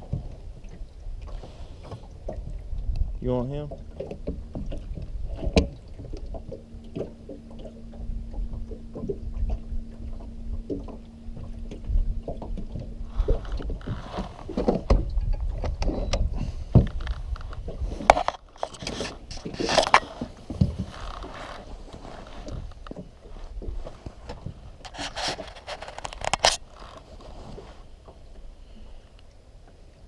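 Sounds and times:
steady low hum: 0.0 - 24.9
wind rumble on microphone: 0.0 - 29.3
clothing and gear rustling: 13.1 - 14.9, 16.9 - 27.9.

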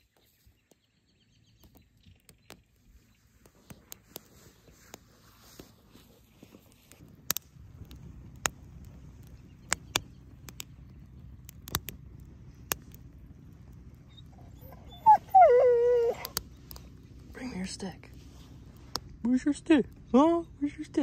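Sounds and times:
campfire crackling and popping: 1.5 - 21.0
dog whining: 14.1 - 16.4.

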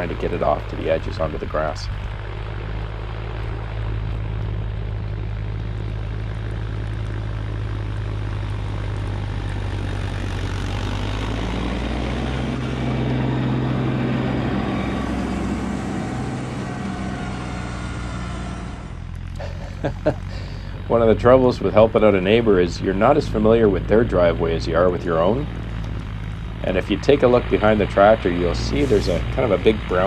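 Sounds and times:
steady rushing noise: 0.0 - 19.2
tractor diesel engine running: 0.0 - 30.0.

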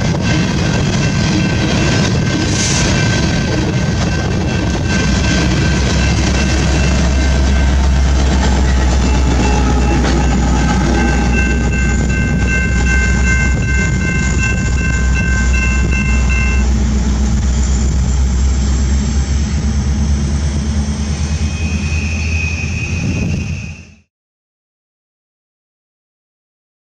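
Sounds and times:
freight train rumbling past: 0.0 - 24.0
high ringing tone: 0.3 - 17.0.

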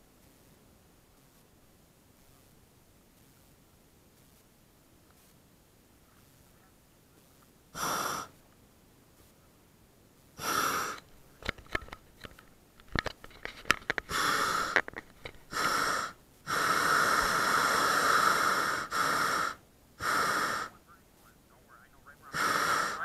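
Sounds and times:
sharp clicks and knocks: 11.0 - 14.1, 14.7 - 15.4
propane burner blasts: 22.3 - 23.0.

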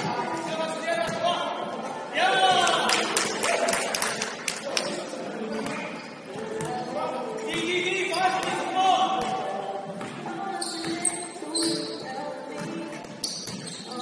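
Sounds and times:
basketball bouncing on court: 12.6 - 14.0.

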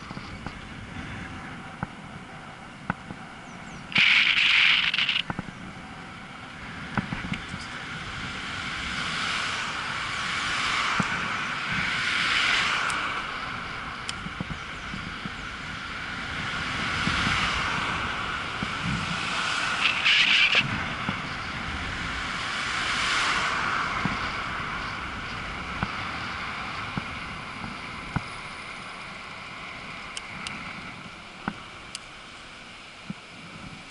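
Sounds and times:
wind noise on microphone: 0.0 - 32.2, 32.9 - 33.9
cars passing: 0.0 - 33.8
sharp clicks from bumps: 3.9 - 5.5, 6.4 - 7.8, 19.7 - 21.3.

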